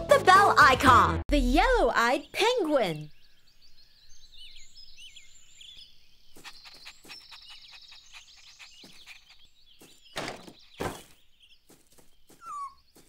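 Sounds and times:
birds chirping: 1.4s - 13.0s
cartoon puppy pattering steps: 6.3s - 10.6s.

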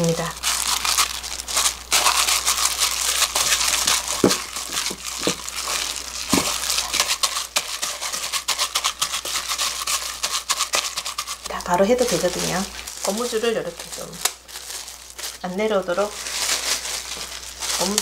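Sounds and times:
plastic gloves crinkling: 0.0s - 18.0s
dough thudding against bowl: 3.9s - 5.4s, 6.3s - 6.6s.

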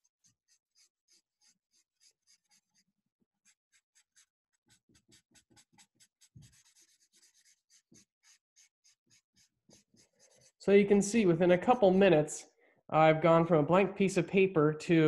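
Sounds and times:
felt-tip marker hatching on paper: 0.0s - 2.8s, 3.4s - 10.6s.

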